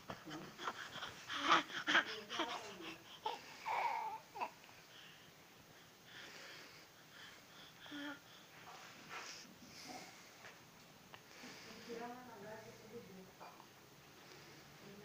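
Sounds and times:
infant babbling and cooing: 0.1 - 5.1, 7.8 - 8.3.

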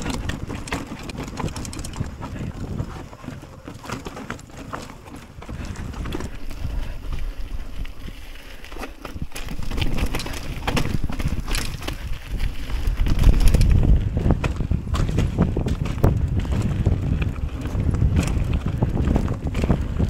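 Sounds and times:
bike rattling and knocking: 0.0 - 20.0
wind rumbling on microphone: 0.0 - 20.0.

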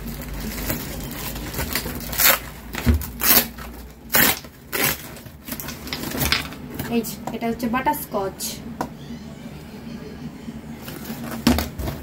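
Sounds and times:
packaging rustles and knocks: 10.8 - 12.0.

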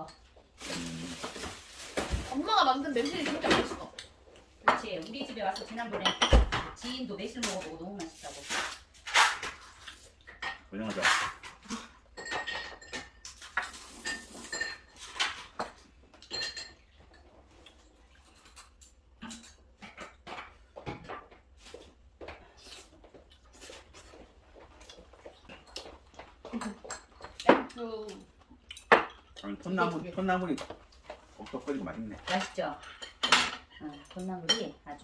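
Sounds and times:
cutlery clinking on plates: 9.1 - 21.2.

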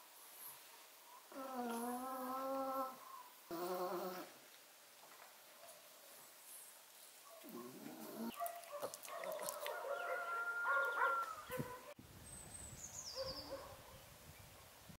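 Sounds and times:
fowl calling: 9.8 - 11.6.

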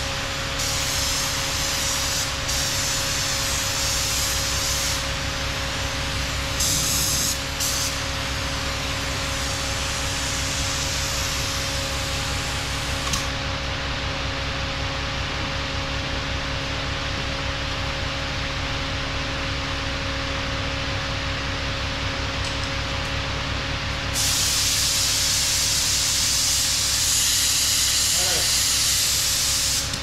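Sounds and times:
steady mechanical hum: 0.0 - 30.0
paint spray gun hissing: 0.6 - 5.0, 6.2 - 8.0, 24.2 - 30.0.

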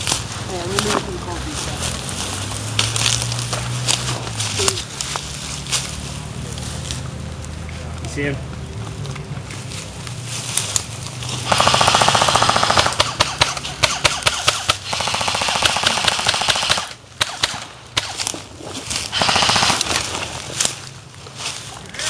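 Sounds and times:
airsoft rifle full-auto bursts: 11.4 - 18.2, 19.1 - 20.2
airsoft rifle single cracks: 11.5 - 18.3.

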